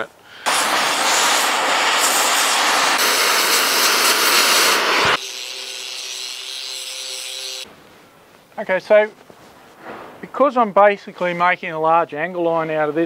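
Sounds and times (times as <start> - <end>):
cutting torch hissing: 0.4 - 7.7
angle grinder grinding steel: 0.5 - 7.7.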